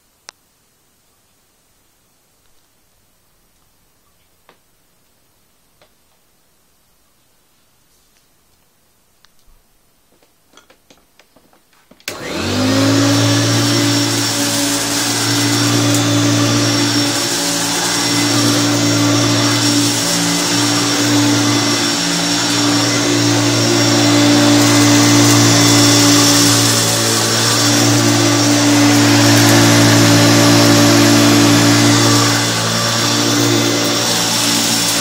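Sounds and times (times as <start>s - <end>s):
vacuum cleaner motor running: 12.1s - 35.0s.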